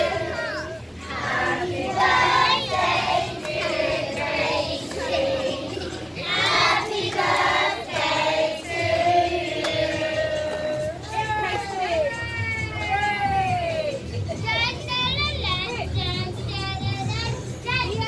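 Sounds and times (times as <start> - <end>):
children singing together: 0.0 - 10.5.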